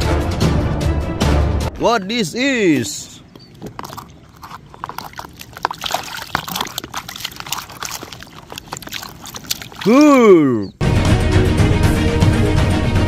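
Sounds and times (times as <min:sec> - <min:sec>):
water splashing in plastic basin: 0:03.2 - 0:10.1.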